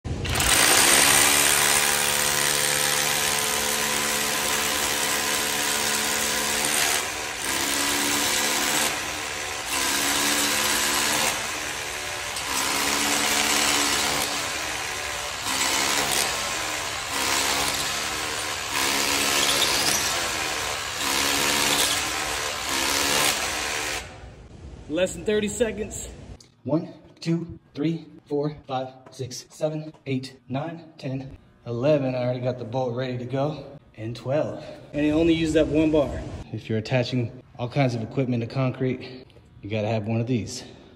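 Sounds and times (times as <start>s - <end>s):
rotary hammer drilling concrete: 0.1s - 24.2s.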